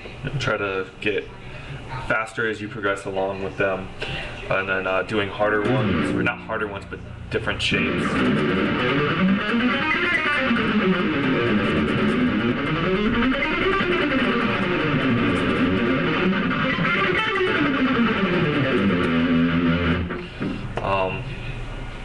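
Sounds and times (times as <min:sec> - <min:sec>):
electric guitar runs: 0:07.9 - 0:20.3.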